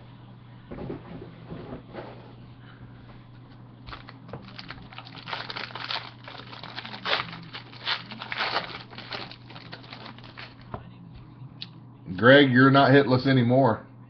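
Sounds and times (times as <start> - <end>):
foil pack crinkling and tearing: 3.9 - 10.7.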